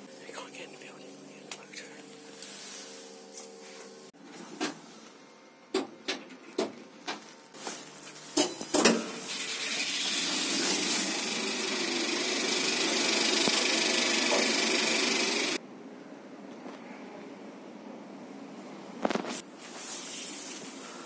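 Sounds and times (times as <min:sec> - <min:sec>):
lift motor whirring: 0:09.7 - 0:15.6.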